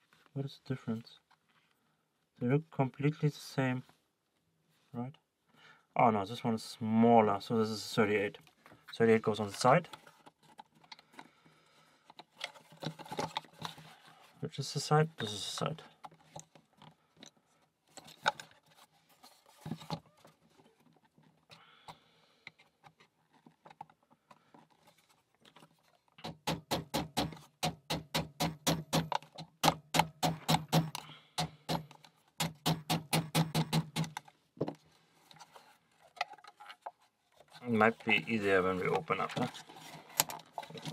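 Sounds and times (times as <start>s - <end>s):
small hammer tapping wood: 26.2s - 34.2s.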